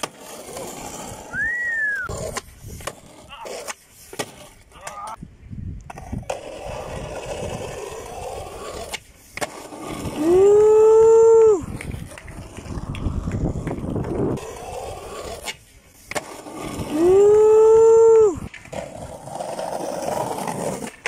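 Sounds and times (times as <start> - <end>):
skateboard wheels rolling on asphalt: 0.0 - 21.0
skateboard clacks: 5.9 - 21.0.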